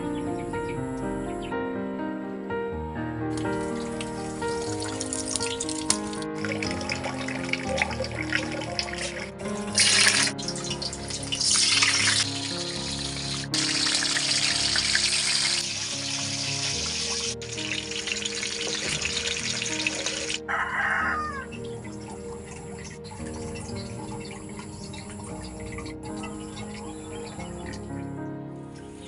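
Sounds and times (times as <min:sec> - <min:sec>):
background music: 0:00.0 - 0:29.0
food deep-frying in oil: 0:03.4 - 0:22.0.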